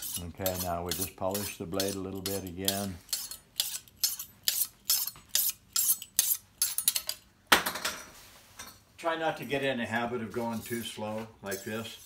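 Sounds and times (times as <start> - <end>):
knife scraping through sharpener: 0.0 - 7.2.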